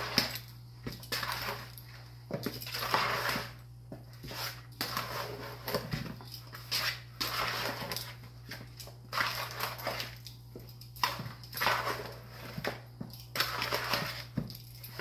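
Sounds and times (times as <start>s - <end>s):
fork tossing raw chicken: 0.0s - 10.2s, 11.0s - 15.0s.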